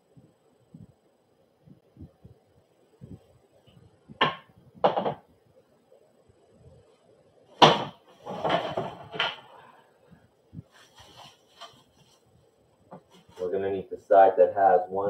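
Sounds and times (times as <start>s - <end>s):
wooden pieces knocking on floor: 4.2s - 5.2s, 7.6s - 9.4s.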